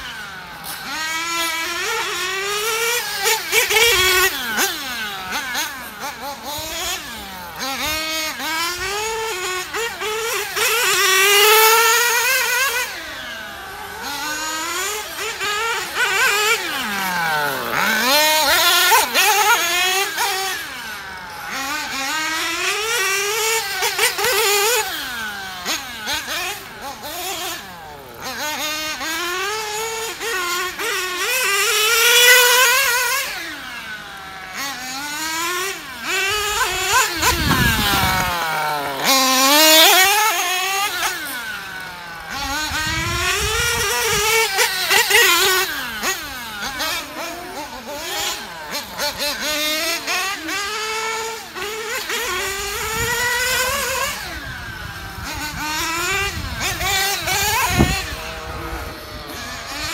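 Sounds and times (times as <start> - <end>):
rc car engine revving: 0.0 - 59.9.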